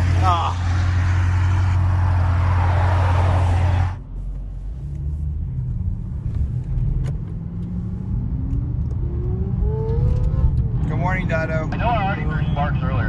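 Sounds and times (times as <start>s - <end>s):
highway traffic rushing past: 0.0s - 4.2s
car engine and road noise: 0.0s - 13.0s.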